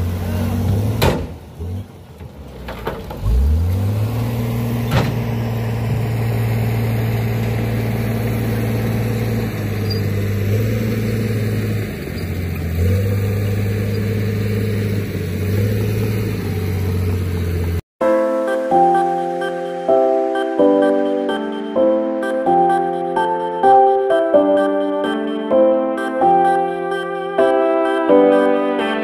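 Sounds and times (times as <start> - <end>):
diesel truck engine revving: 0.0 - 17.8.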